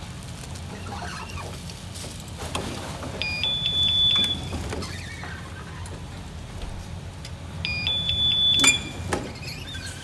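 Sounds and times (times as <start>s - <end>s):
high electronic beep: 3.2s - 4.5s, 7.7s - 9.1s.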